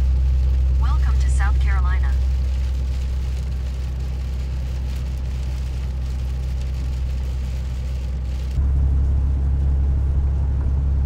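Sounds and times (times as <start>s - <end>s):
tyre hiss on wet road: 0.0s - 8.6s
vehicle cabin road noise drone: 0.0s - 11.0s.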